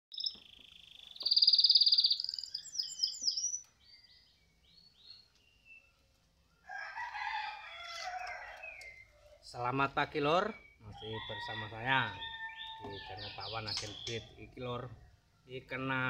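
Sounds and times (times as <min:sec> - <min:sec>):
canary singing: 0:00.1 - 0:15.3
rooster crowing: 0:06.6 - 0:09.1, 0:11.0 - 0:13.5.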